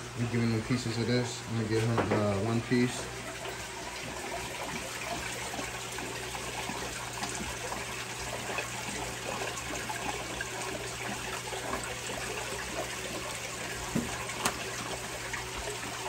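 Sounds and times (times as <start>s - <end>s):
aquarium water trickling and bubbling: 0.0s - 16.0s.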